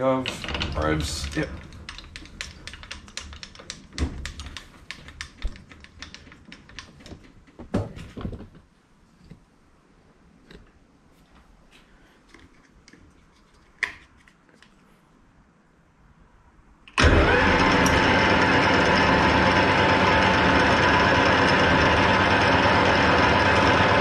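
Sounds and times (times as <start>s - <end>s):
metal lathe motor whining: 17.0s - 24.0s.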